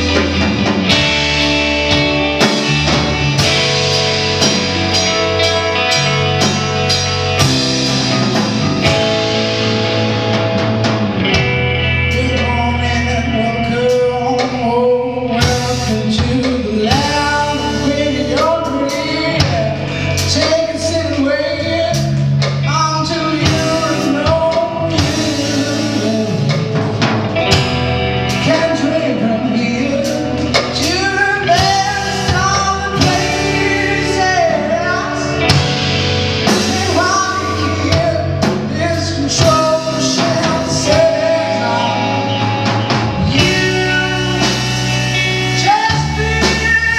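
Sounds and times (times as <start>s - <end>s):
rock band playing live: 0.0s - 46.9s
man singing: 12.0s - 46.9s.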